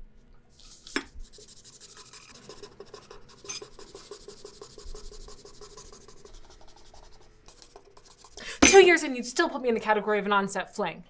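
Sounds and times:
pen scratching on paper: 0:00.6 - 0:08.4.

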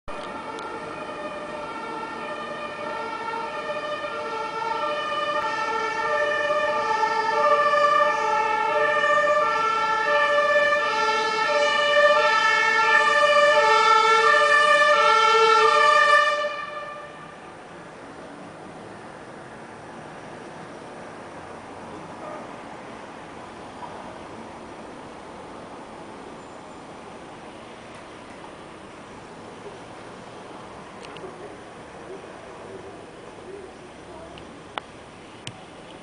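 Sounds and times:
two-tone fire engine sirens: 0:00.1 - 0:17.6.

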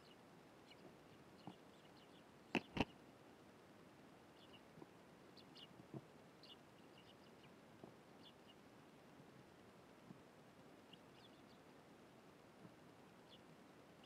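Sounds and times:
sparrows chirping: 0:00.0 - 0:03.0, 0:04.3 - 0:08.6, 0:10.8 - 0:11.7, 0:13.2 - 0:13.5.

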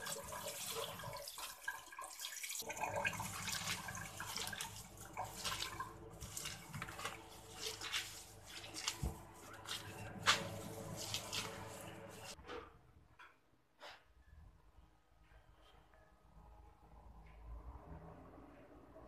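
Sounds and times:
water splashing and dripping: 0:00.0 - 0:12.4
wet leaves rustling by hand: 0:03.1 - 0:12.4.

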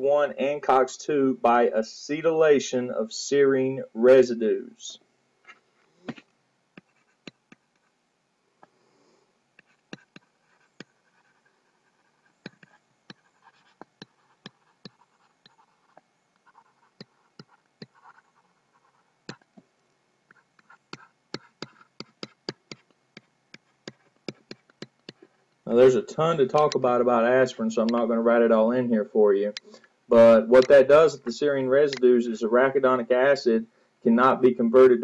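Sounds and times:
stylus clicking and scratching: 0:05.4 - 0:08.0, 0:09.6 - 0:19.6, 0:20.3 - 0:28.1, 0:29.5 - 0:32.1.

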